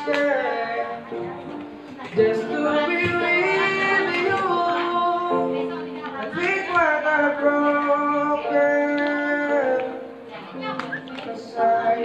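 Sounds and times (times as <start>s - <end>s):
boy singing into a microphone: 0.0s - 12.0s.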